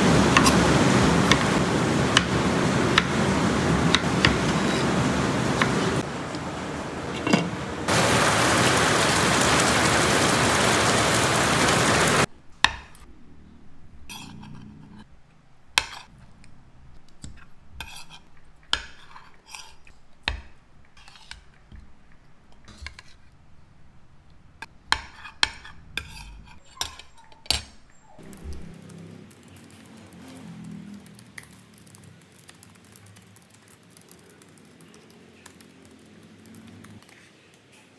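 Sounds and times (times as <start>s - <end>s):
loud steady rushing noise: 0.0s - 12.3s.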